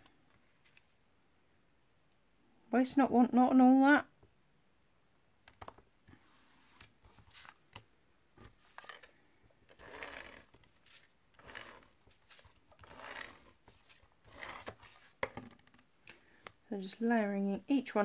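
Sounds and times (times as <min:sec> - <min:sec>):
card stock rustling: 0:06.2 - 0:17.0.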